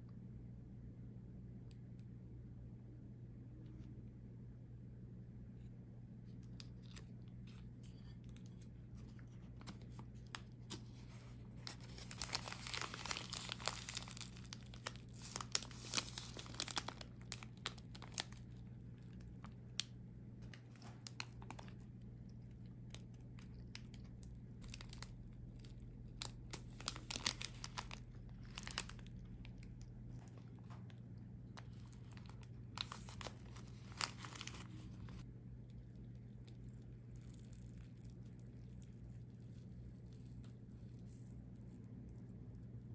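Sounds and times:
steady low hum: 0.0s - 42.9s
paper sleeve crinkling: 6.4s - 22.0s, 22.9s - 35.2s.

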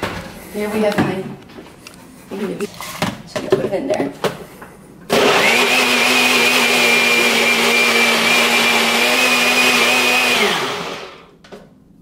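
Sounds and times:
blender motor whining: 5.1s - 11.3s.

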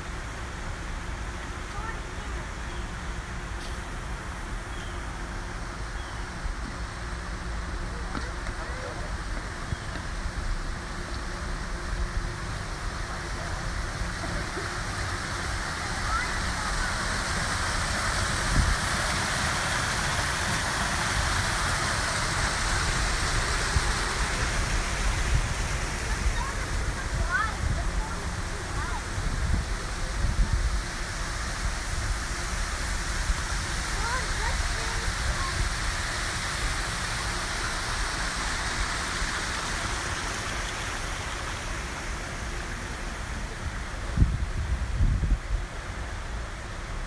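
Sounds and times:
waterfall splashing: 0.0s - 47.0s.

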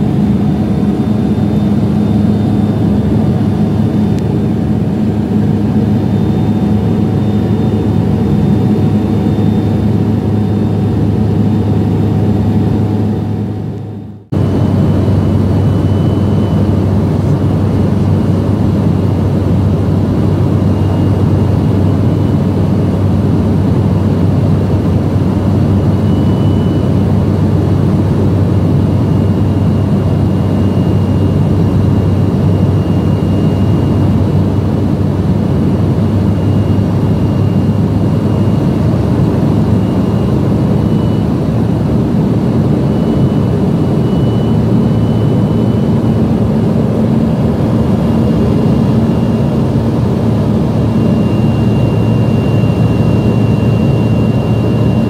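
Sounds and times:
airplane cabin engine hum: 0.0s - 55.0s
faint high whine: 0.0s - 55.0s.

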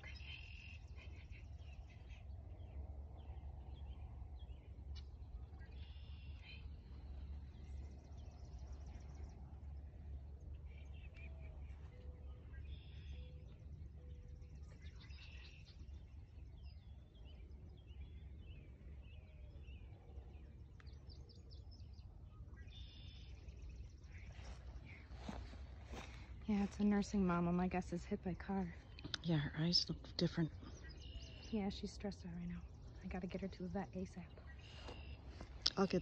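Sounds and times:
birds chirping: 0.0s - 36.0s
steady low rumble: 0.0s - 36.0s.

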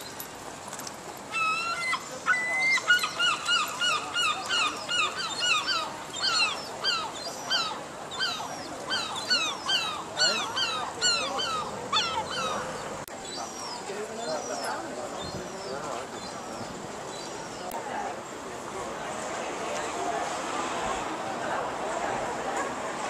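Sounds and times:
gull calling: 1.3s - 12.8s.

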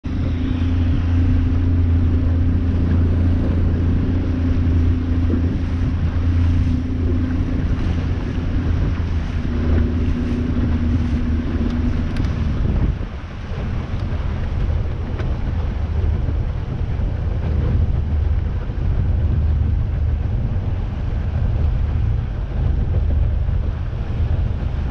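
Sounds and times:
boat engine drone: 0.0s - 24.9s.

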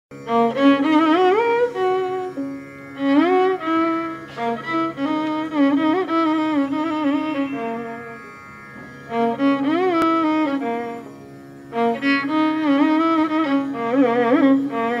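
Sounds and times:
melody of sliding ornamented notes: 3.6s - 11.1s.

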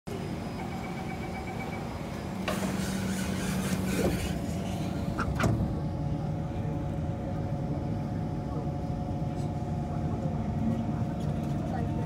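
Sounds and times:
train traction motor whine: 0.1s - 12.0s
train clunks: 0.6s - 5.9s.

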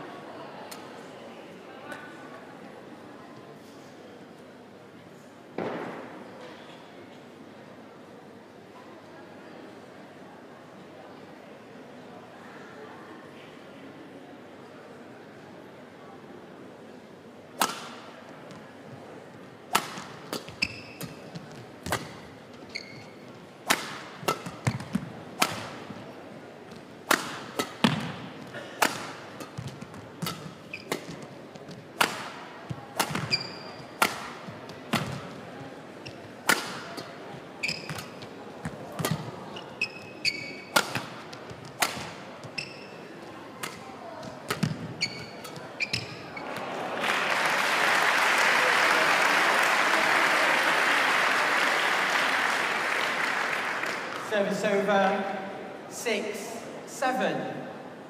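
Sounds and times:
rackets hitting shuttlecock: 17.6s - 18.1s, 19.7s - 22.3s, 23.6s - 26.1s, 26.7s - 35.4s, 36.1s - 43.0s, 43.6s - 46.3s
court shoes squeaking: 17.6s - 46.7s.

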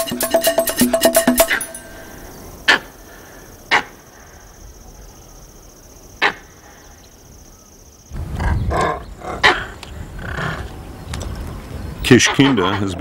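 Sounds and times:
thin high tone: 0.0s - 2.5s
monkey calling loudly: 0.0s - 3.0s, 3.7s - 4.0s, 8.3s - 10.7s, 12.2s - 13.0s.

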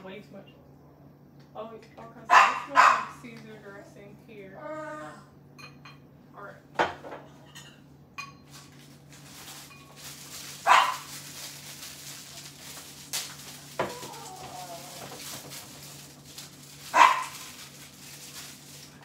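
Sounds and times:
dog barking: 2.3s - 3.2s, 10.6s - 11.1s, 16.9s - 17.5s.

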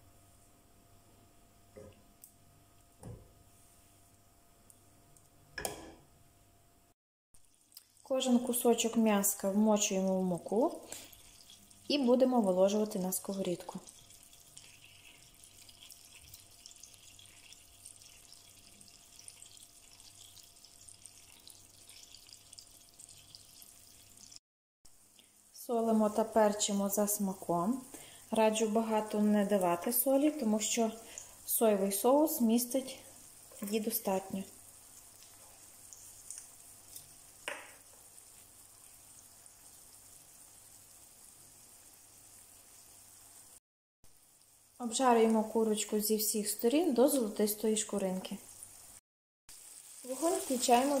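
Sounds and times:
chicken frying in butter: 7.4s - 24.4s, 25.0s - 51.0s
small crackling pops: 35.0s - 38.1s.

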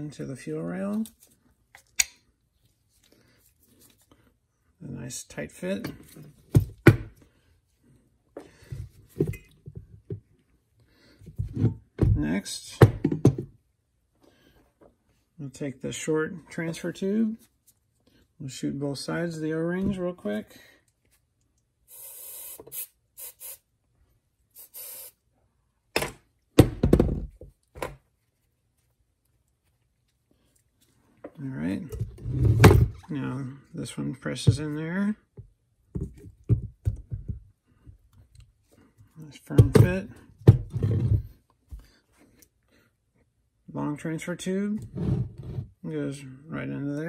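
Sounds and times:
handling clunk and clatter: 8.6s - 10.3s
aerosol spray hissing: 21.9s - 23.6s, 24.6s - 25.2s.

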